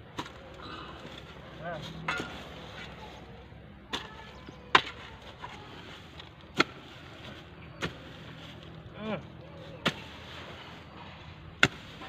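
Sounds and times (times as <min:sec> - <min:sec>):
hoe chopping into earth: 0:11.6 - 0:12.0.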